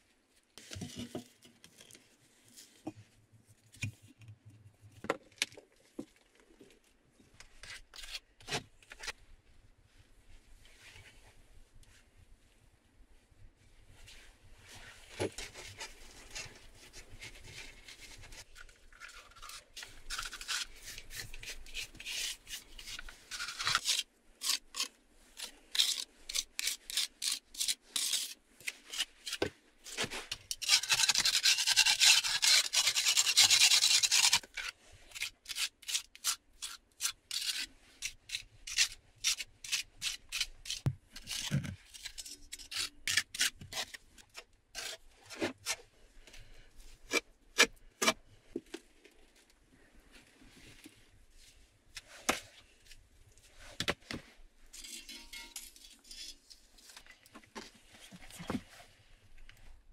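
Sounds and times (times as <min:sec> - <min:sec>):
trowel scraping mortar: 0:19.2 - 0:44.0.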